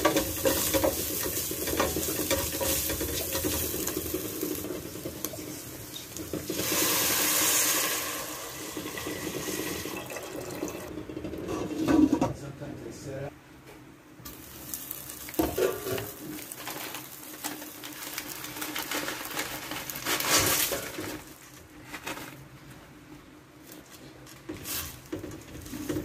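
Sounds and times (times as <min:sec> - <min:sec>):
wooden spatula stirring: 0:00.0 - 0:07.2
chicken and onions sizzling: 0:00.0 - 0:10.0, 0:14.3 - 0:20.0
broth pouring into pot: 0:01.8 - 0:10.9.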